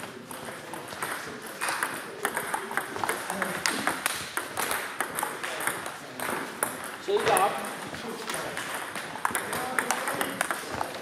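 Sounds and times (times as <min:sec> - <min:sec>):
murmur of sports hall: 0:00.0 - 0:11.0
table tennis ball clicking: 0:08.3 - 0:11.0.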